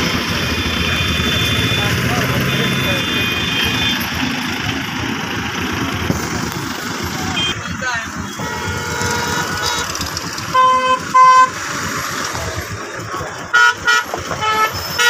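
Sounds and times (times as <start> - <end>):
road noise: 0.0 - 15.0
vehicle horns honking: 0.2 - 4.5, 7.0 - 12.0, 13.4 - 15.0.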